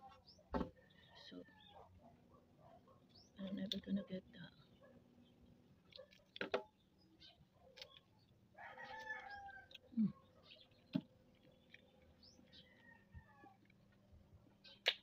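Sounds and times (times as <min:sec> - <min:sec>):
rooster crowing: 0:08.6 - 0:09.8, 0:12.6 - 0:13.6.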